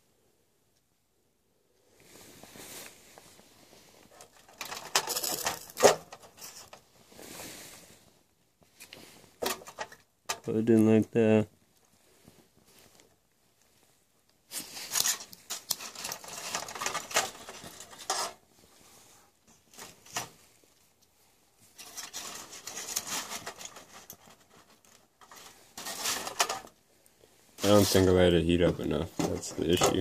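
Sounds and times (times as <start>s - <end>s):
foil crinkling: 4.0s - 6.9s, 14.6s - 18.4s, 21.8s - 26.8s.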